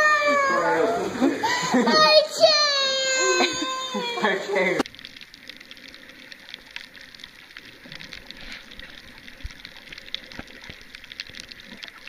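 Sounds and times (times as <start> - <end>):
dense fine crackle: 2.4 - 12.0.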